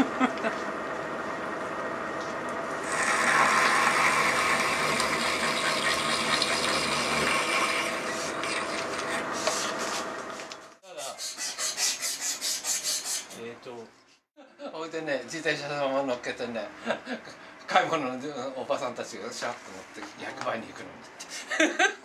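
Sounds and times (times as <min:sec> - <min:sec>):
milling machine motor hum: 0:00.0 - 0:10.8
metal cutting noise: 0:02.8 - 0:09.8.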